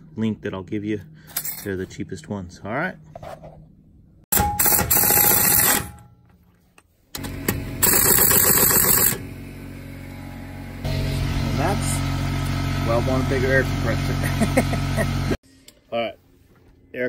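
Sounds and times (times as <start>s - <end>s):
pneumatic impact wrench hammering: 4.3s - 6.0s, 7.2s - 9.3s
machine hum: 7.1s - 16.8s.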